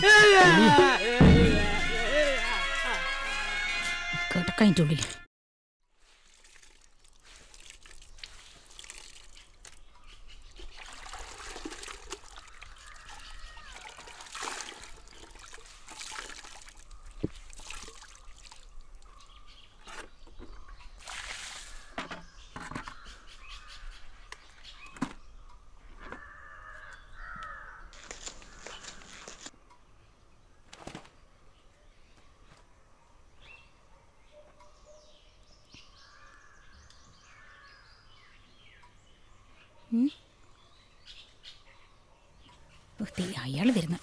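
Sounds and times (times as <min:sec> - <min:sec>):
sharp knocks: 0:01.2 - 0:01.9
water splashing in bucket: 0:06.0 - 0:09.9, 0:10.5 - 0:19.1, 0:21.0 - 0:22.0
birds calling: 0:12.4 - 0:14.0, 0:21.7 - 0:44.0.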